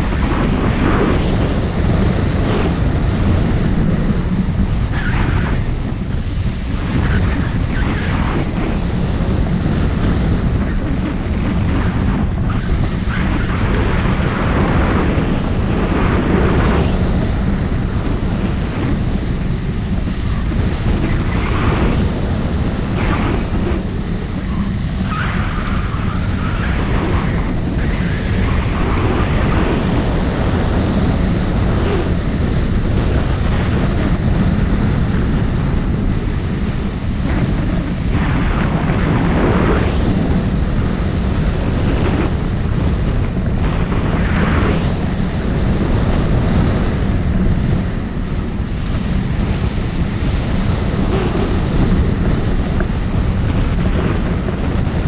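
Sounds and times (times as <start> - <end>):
wind rushing over microphone: 0.0 - 55.0.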